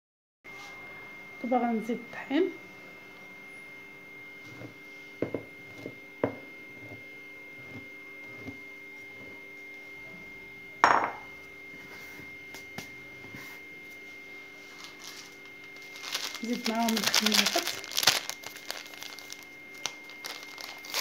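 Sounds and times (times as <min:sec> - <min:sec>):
faint steady hum: 0:00.5 - 0:21.0
ceramic bowl clinking and knocking: 0:10.8 - 0:11.3.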